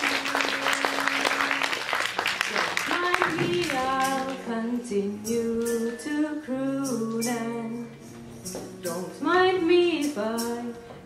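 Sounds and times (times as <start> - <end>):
woman singing slow song: 0.0 - 1.7, 2.5 - 11.0
acoustic guitar: 0.0 - 11.0.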